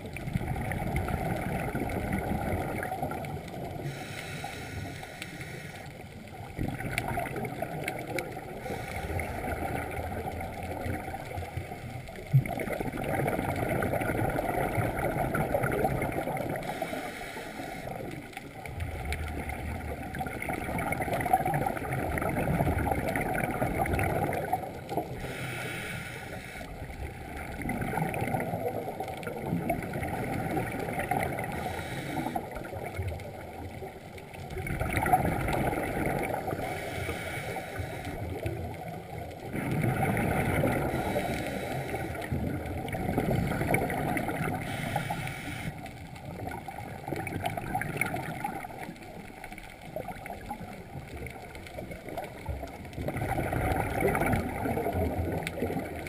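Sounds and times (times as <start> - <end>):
bubbles rumbling and gurgling: 0.0 - 56.0
hiss: 3.8 - 5.9, 16.6 - 18.1, 25.2 - 26.8, 31.6 - 32.4, 36.6 - 38.2, 44.6 - 45.8
diver breathing through regulator: 3.8 - 6.1, 8.6 - 9.6, 16.6 - 18.2, 25.0 - 27.0, 31.4 - 32.7, 36.5 - 38.5, 40.6 - 42.4, 44.4 - 46.0.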